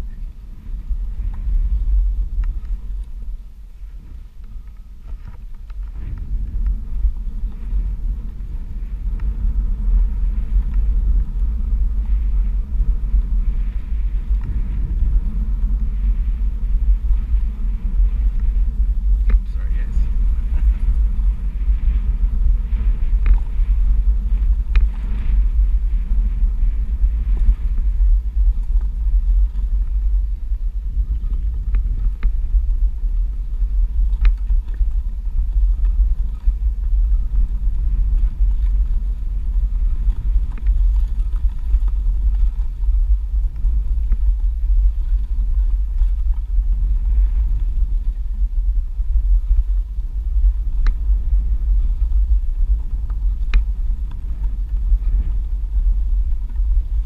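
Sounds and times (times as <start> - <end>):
stones ticking under tyre: 0.0 - 57.0
wind on microphone: 0.0 - 57.0
tyre rolling over gravel: 33.4 - 48.1.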